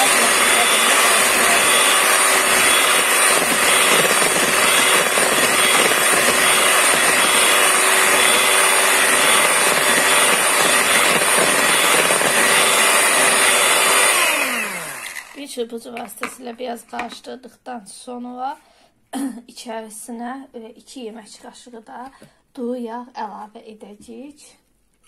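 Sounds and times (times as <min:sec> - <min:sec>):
electric hand mixer whirring: 0:00.0 - 0:15.5.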